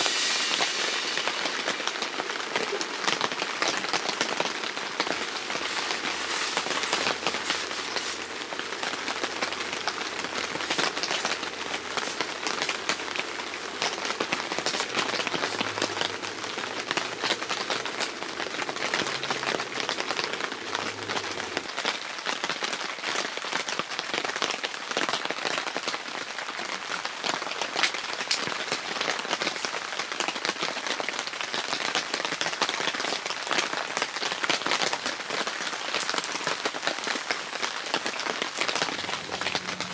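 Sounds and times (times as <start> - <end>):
rain on tent fabric: 0.0 - 39.9.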